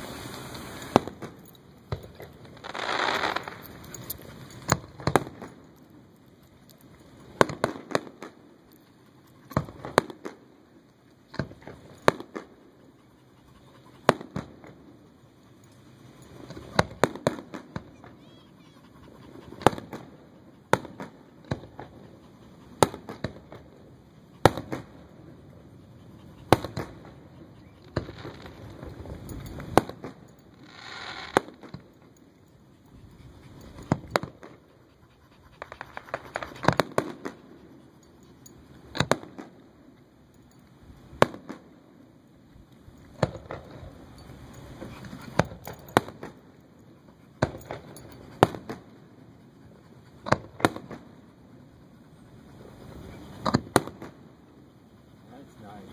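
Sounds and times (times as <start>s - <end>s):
fireworks shells bursting: 0.0s - 5.7s, 24.4s - 25.1s, 27.8s - 32.4s, 35.6s - 37.6s, 43.1s - 46.6s.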